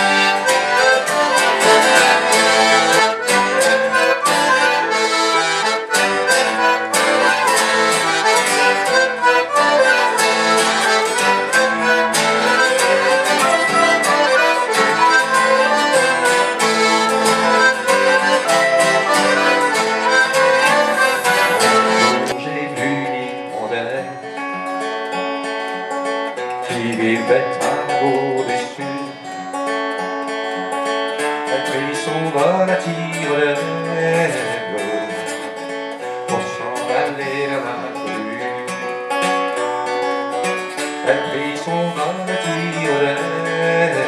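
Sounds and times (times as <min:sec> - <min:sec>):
accordion and fiddle dance tune: 0:00.0 - 0:22.4
acoustic guitar strumming: 0:00.0 - 0:44.0.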